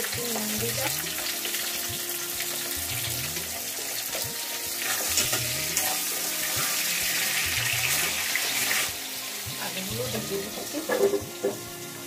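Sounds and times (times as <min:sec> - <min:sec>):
potatoes sizzling in hot oil: 0:00.0 - 0:12.0
spatula scraping and knocking pan: 0:04.1 - 0:06.9, 0:10.5 - 0:11.7.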